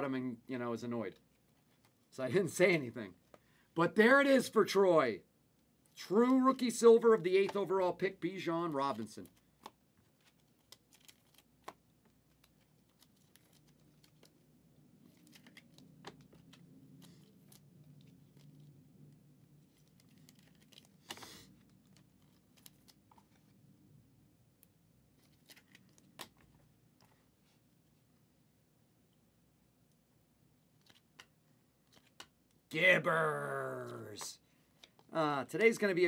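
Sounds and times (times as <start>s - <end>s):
trading cards clicking and rustling: 8.6s - 18.7s, 19.6s - 23.5s, 30.7s - 32.4s, 33.0s - 36.0s.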